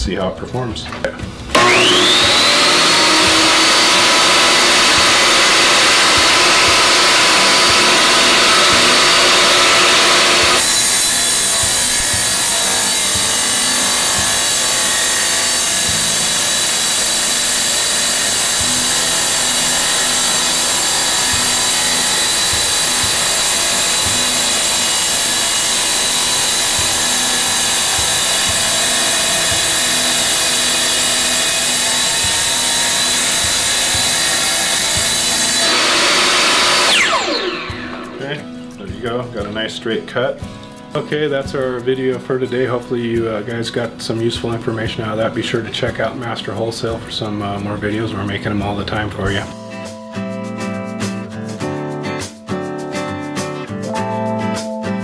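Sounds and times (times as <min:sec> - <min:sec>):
tile saw cutting tile: 0:01.5 - 0:38.6.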